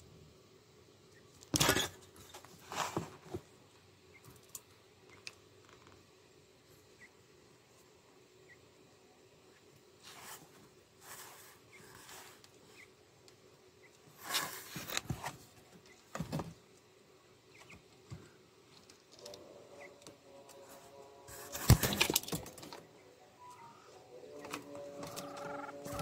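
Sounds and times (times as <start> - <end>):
birds rustling and scratching: 1.5 - 6.1, 10.0 - 16.8, 17.5 - 23.0.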